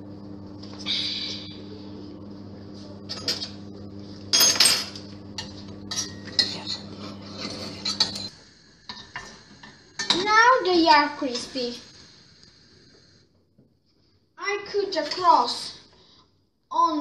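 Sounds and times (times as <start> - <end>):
steady low hum: 0.0 - 13.4
utensil scraping a saucepan: 5.4 - 8.3.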